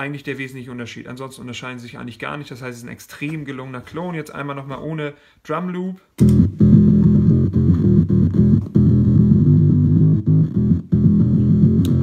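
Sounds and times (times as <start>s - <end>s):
fuzz electric bass riff: 6.2s - 12.0s.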